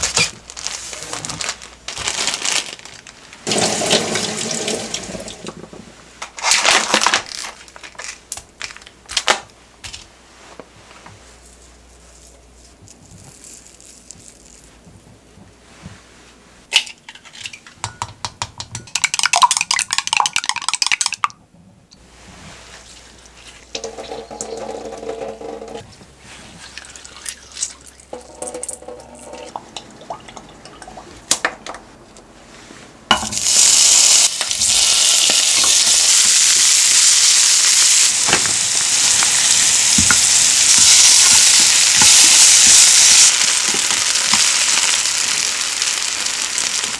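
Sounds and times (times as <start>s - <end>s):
vegetables sizzling in oil: 3.4s - 5.5s, 33.1s - 46.9s
glass bowl washed in sink: 3.5s - 5.6s, 22.7s - 31.3s
kitchen handling sounds: 23.7s - 26.0s, 28.1s - 29.7s, 33.1s - 33.4s.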